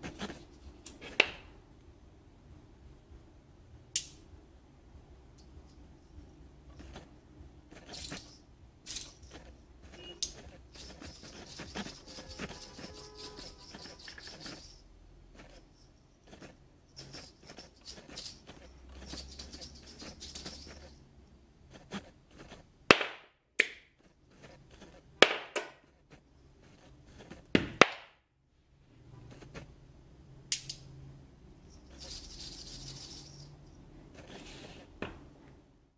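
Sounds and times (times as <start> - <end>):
steel ball whirring around ring: 7.8 - 14.8.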